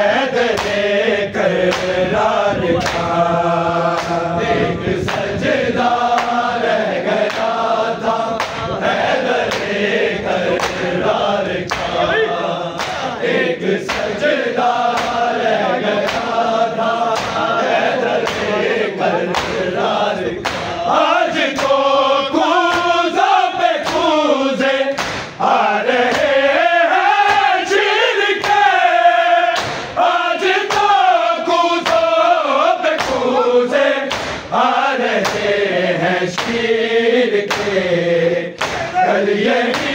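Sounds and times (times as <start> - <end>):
men chanting a lament: 0.0 - 39.9
sharp beating strokes: 7.2 - 24.2, 24.9 - 27.8, 29.5 - 30.0, 32.9 - 37.9, 38.6 - 39.9.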